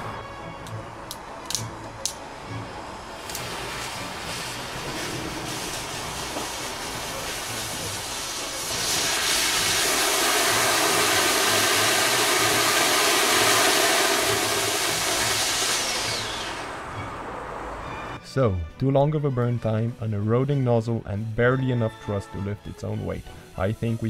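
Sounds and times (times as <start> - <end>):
fuse sputtering and hissing: 3.1 - 17.2, 22.7 - 24.0
rocket motor rushing hiss: 3.1 - 18.2.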